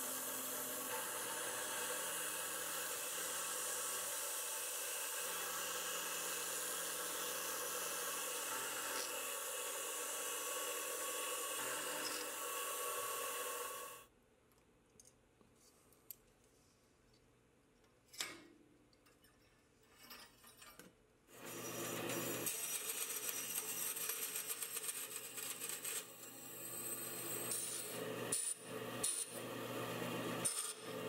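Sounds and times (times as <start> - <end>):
band saw cutting metal: 0.0 - 14.0, 21.4 - 31.0
milling machine cutting metal: 0.0 - 14.0.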